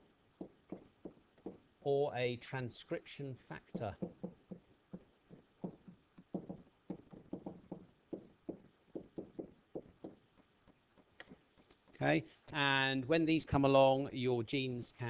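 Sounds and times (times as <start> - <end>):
pen tapping and scraping on paper: 0.0 - 1.6, 3.7 - 12.0.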